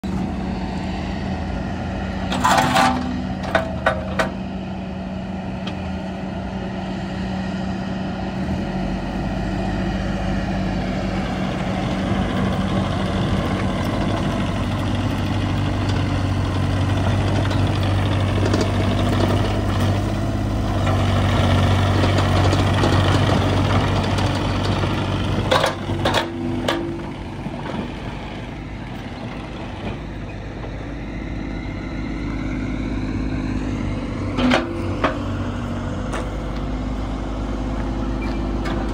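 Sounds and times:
excavator diesel engine under load: 0:00.0 - 0:38.9.

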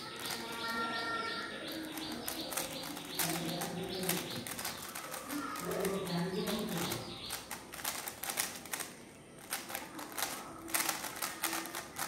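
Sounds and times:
speed cube clicking: 0:00.0 - 0:01.0, 0:01.7 - 0:12.0.

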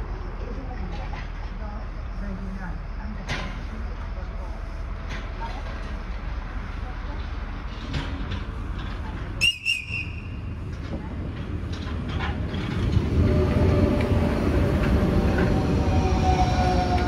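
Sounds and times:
train wheels rumbling: 0:00.0 - 0:17.0
train motor whine: 0:12.6 - 0:17.0.

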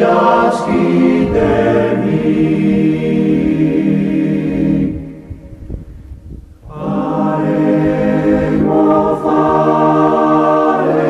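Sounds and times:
choir singing held chords: 0:00.0 - 0:06.0, 0:06.6 - 0:11.0.

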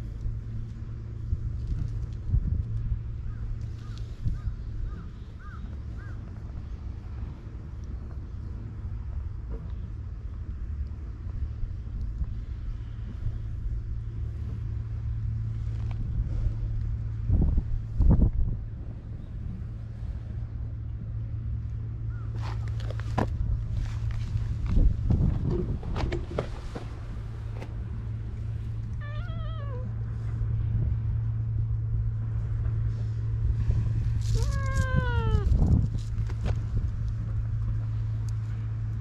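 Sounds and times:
low background rumble: 0:00.0 - 0:39.0
low machine hum: 0:00.0 - 0:39.0
wind buffeting microphone: 0:00.0 - 0:39.0
cat meowing: 0:29.0 - 0:29.9, 0:34.4 - 0:35.6.

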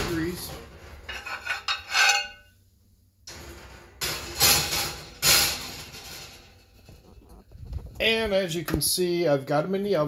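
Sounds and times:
metal plates clinking and clattering: 0:00.0 - 0:02.5, 0:03.3 - 0:07.3.

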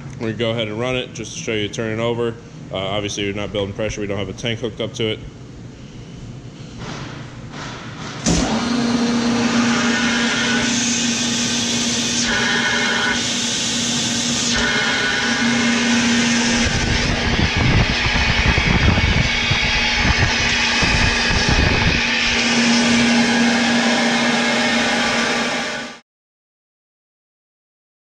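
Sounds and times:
air compressor hum: 0:05.4 - 0:26.0
air rushing from pipe: 0:09.5 - 0:26.0.

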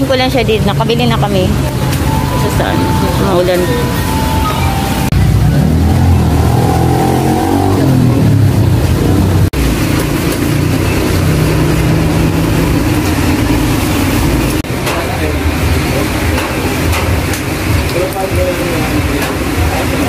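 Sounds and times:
small motorcycle engine revving: 0:05.2 - 0:14.6.

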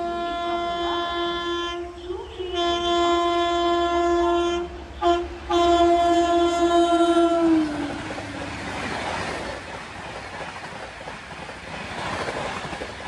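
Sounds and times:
locomotive horn blasts: 0:00.0 - 0:08.4
train rumbling: 0:00.0 - 0:13.0.

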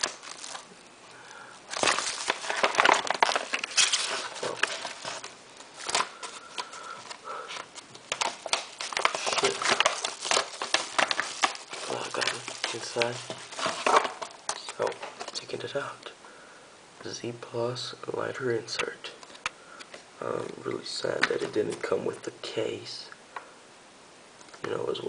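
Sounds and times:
packaging rustling and crinkling: 0:00.0 - 0:00.8, 0:01.6 - 0:15.7.

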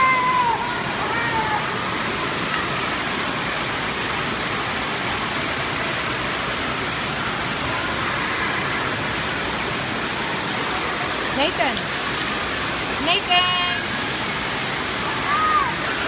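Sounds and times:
water spraying and splashing: 0:00.0 - 0:16.0.

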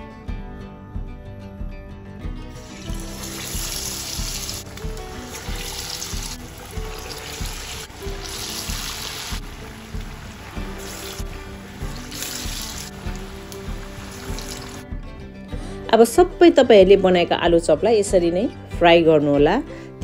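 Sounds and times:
background music: 0:00.0 - 0:20.0
food sizzling in deep-fry oil: 0:02.5 - 0:14.8.

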